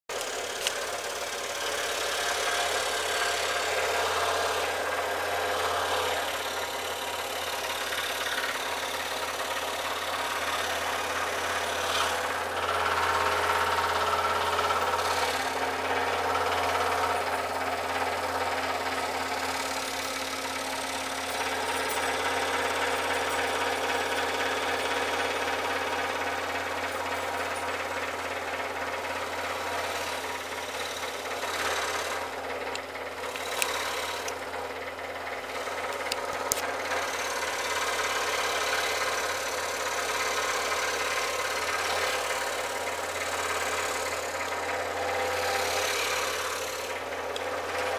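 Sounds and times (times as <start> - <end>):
scroll saw cutting wood: 0.0 - 47.9
low motor hum: 0.1 - 47.9
sharp clicks: 32.7 - 34.4.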